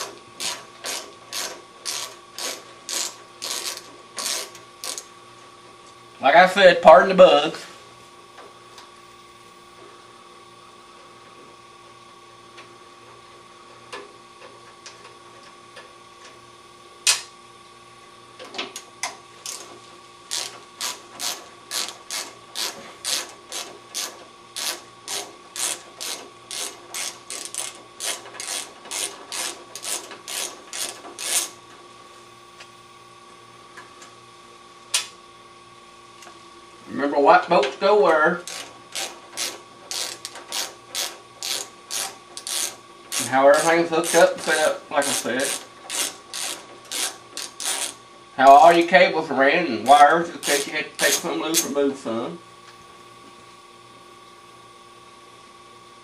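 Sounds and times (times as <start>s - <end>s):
ratchet wrench clicking: 0.0s - 5.1s, 20.3s - 31.5s, 38.5s - 48.0s.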